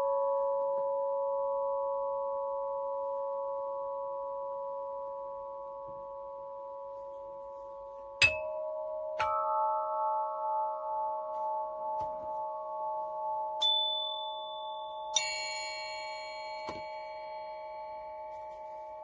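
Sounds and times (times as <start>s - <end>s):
meditation bell tones: 0.0s - 19.0s
higher bell struck: 8.2s - 19.0s.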